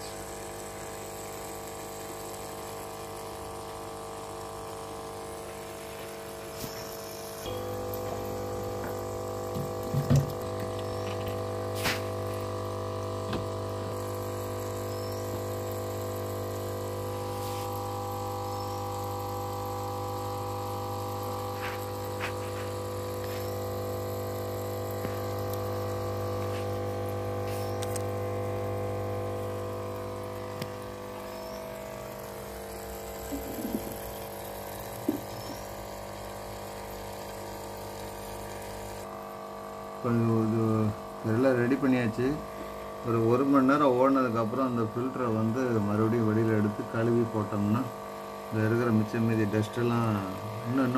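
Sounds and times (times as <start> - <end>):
bubbling water: 0.0 - 38.8
filter pump electric hum: 0.0 - 50.9.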